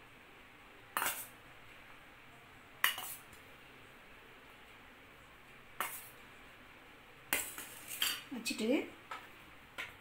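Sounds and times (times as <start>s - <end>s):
spoon clinking on steel dishes: 7.3s - 8.3s.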